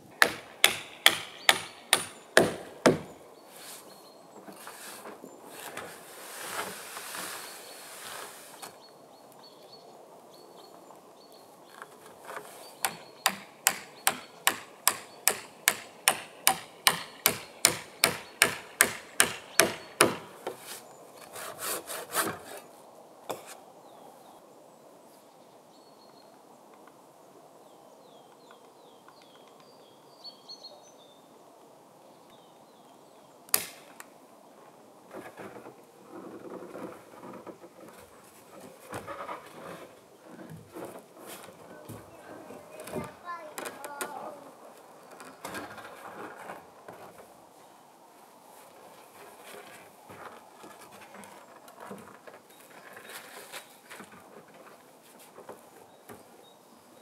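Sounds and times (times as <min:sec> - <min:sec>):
hammer striking wood: 0:00.2 - 0:03.2, 0:12.8 - 0:20.6.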